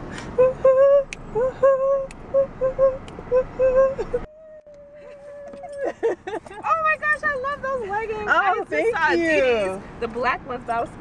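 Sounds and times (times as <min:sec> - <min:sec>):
woman singing wordless syllables: 0:00.4 - 0:05.7.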